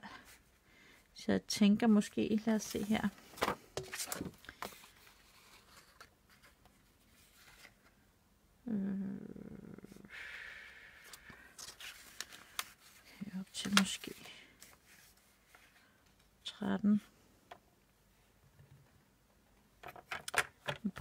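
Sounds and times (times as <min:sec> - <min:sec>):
paper sliding rustle: 0:02.6 - 0:07.9, 0:11.0 - 0:15.8
woman humming: 0:08.6 - 0:10.1.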